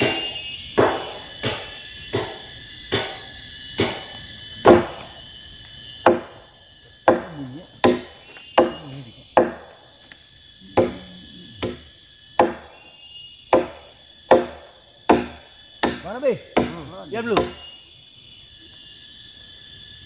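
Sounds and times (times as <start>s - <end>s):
blade chopping into wood: 0.0s - 5.2s, 6.1s - 6.4s, 7.1s - 9.8s, 10.8s - 12.7s, 13.6s - 16.8s, 17.4s - 17.7s
high insect drone: 0.0s - 20.0s.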